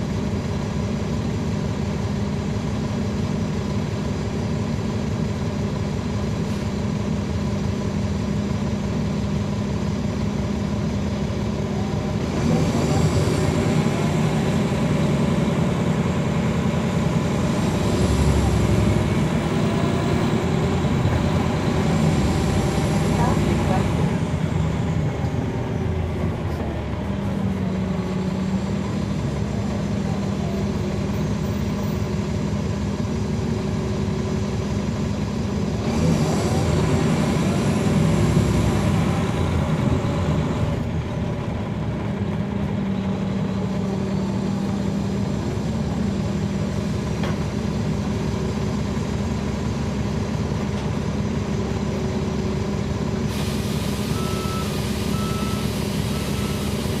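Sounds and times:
bus diesel engine running: 0.0 - 57.0
hiss: 53.3 - 57.0.

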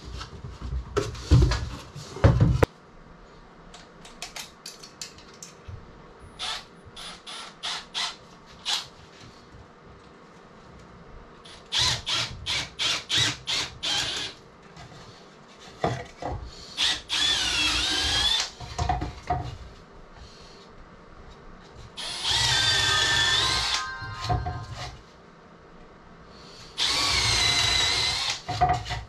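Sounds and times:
power drill whining: 6.4 - 8.9, 11.5 - 14.4, 16.8 - 18.6, 22.0 - 24.8, 26.8 - 29.0.

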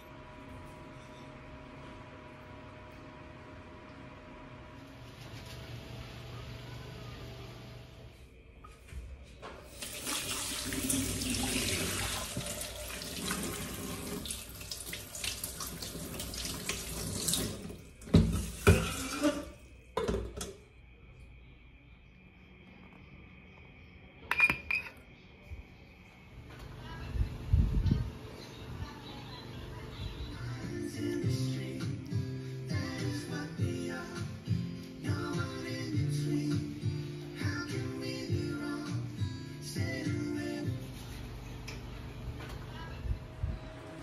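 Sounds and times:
faucet running into sink: 9.7 - 19.6.

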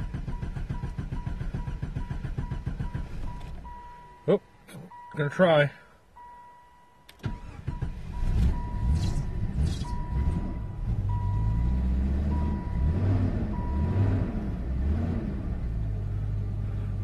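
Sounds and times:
car engine cranking and running rough: 0.0 - 3.8, 7.1 - 17.0
dashboard warning chime beeping: 0.3 - 11.7, 12.3 - 14.0.

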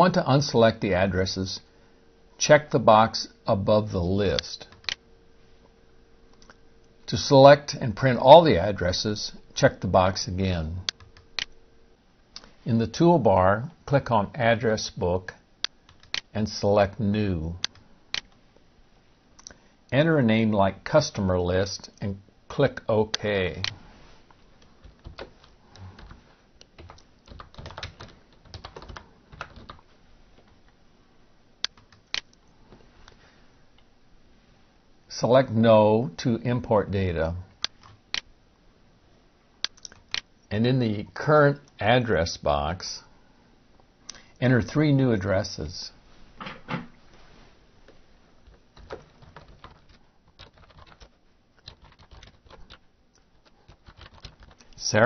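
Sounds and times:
keyboard typing: 15.9 - 16.3, 24.8 - 29.8, 31.6 - 32.4, 48.4 - 54.8.

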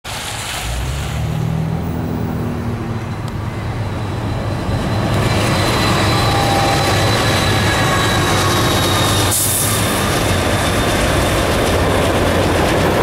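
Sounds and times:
diesel locomotives rumbling: 0.1 - 13.0
steel wheel squeal: 3.0 - 12.0.

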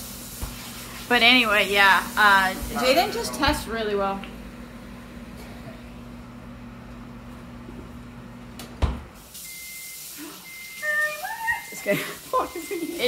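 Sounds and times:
steady low hum: 1.2 - 9.1
refrigerator door thump: 8.8 - 9.1.

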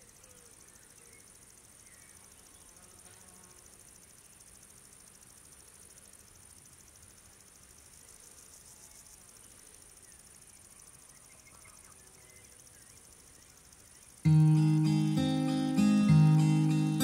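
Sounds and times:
insect chirring: 0.0 - 17.0
acoustic guitar strummed chord: 14.3 - 17.0.

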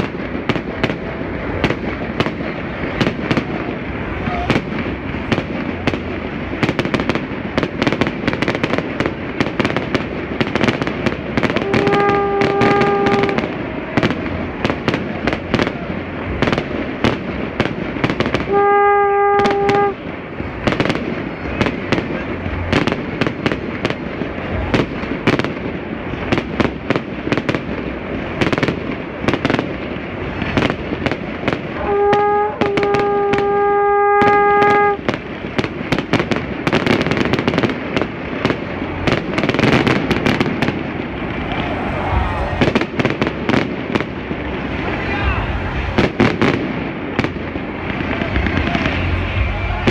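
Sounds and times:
fireworks exploding: 0.0 - 49.9
steady horn-like tone: 11.5 - 13.7, 18.4 - 20.0, 31.7 - 35.0.

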